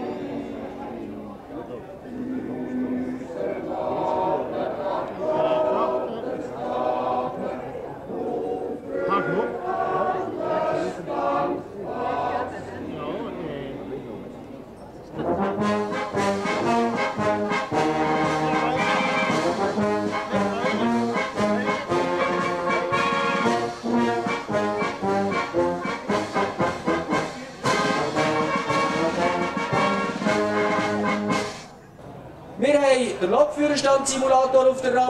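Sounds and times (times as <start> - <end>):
wind band playing: 2.1 - 7.5, 8.1 - 12.6, 15.1 - 31.8.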